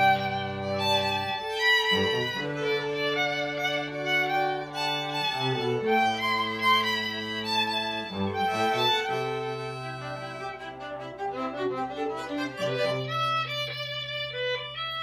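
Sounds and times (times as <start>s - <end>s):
bowed violin melody: 0.0s - 15.0s.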